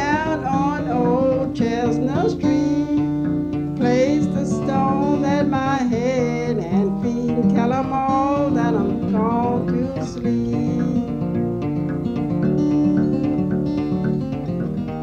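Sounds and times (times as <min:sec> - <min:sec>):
person singing: 0:00.0 - 0:11.4
fingerpicked acoustic guitar: 0:00.0 - 0:15.0.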